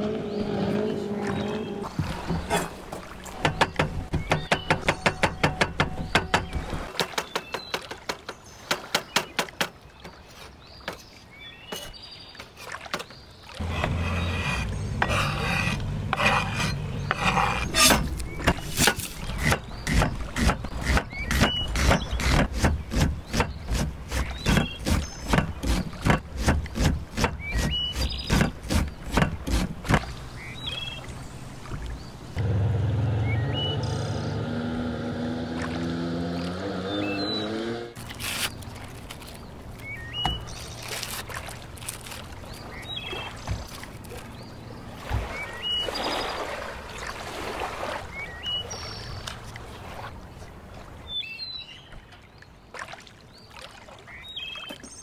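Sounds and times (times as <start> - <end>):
blade scraping across board: 13.6 - 30.0.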